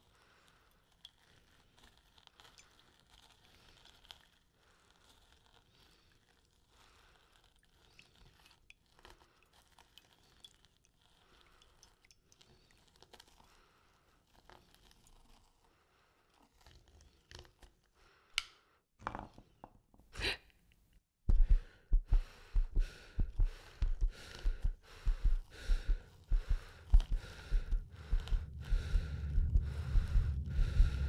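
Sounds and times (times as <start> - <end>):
snail crunching over sand and shells: 0.0 - 17.6, 24.2 - 31.0
rhythmic deep thuds: 21.3 - 31.0
wet bursts: 21.3 - 31.0.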